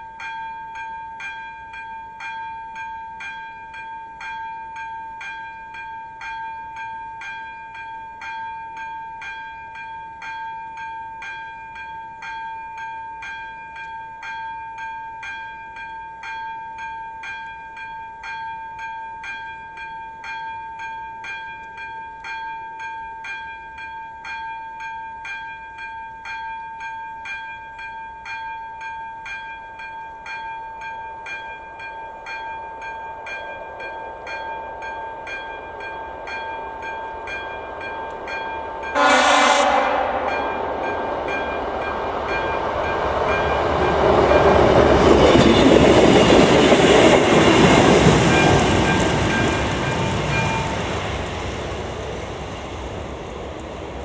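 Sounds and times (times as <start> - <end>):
passenger train rumble: 31.1 - 54.0
train horn blast: 38.9 - 41.5.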